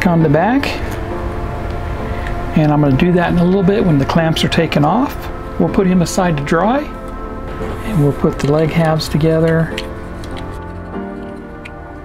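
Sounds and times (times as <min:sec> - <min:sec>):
background music of held notes: 0:00.0 - 0:12.0.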